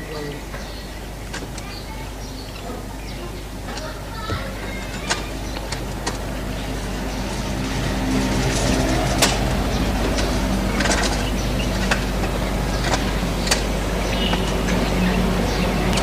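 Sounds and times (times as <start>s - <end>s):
faint man's voice: 0.0s - 0.6s.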